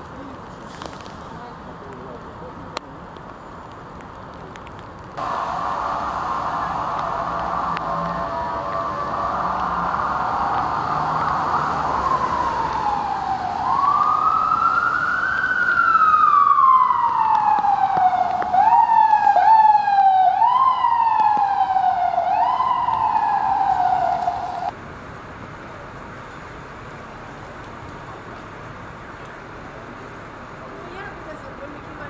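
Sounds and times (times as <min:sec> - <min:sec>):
street noise: 0:00.0 - 0:32.0
emergency vehicle siren wailing: 0:05.2 - 0:24.7.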